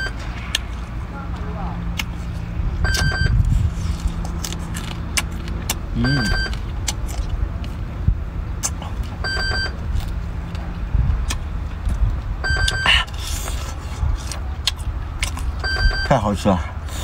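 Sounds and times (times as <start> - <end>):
low engine hum: 0.0 - 17.0
shells crunching while chewed: 0.2 - 1.0, 1.9 - 7.8, 9.8 - 15.7.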